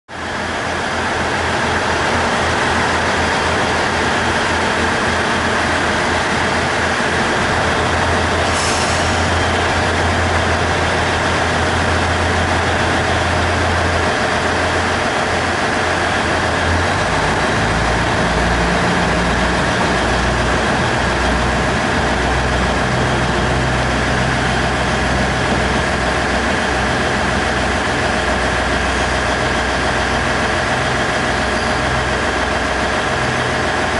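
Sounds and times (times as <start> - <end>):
diesel railcar engine drone: 0.1 - 33.9
brief hiss: 8.5 - 9.4.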